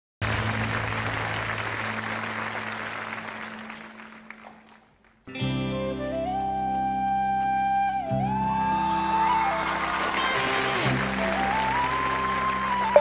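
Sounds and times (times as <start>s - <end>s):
audience applauding: 0.2s - 5.3s, 8.8s - 13.0s
music with held notes: 5.3s - 13.0s.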